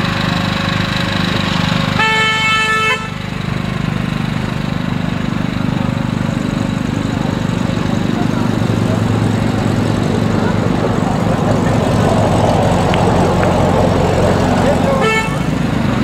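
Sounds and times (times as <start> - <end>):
engine running: 0.0 - 16.0
horn blast: 1.9 - 3.4, 14.7 - 15.6.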